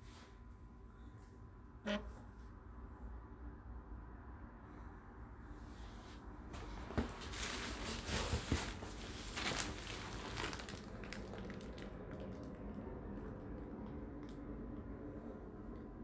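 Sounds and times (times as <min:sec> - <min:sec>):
rustling and shuffling: 0:05.6 - 0:12.8.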